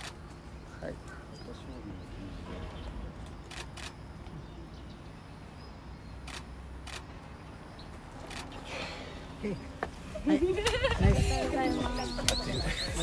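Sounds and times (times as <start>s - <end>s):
camera shutter clicking: 3.5s - 4.0s.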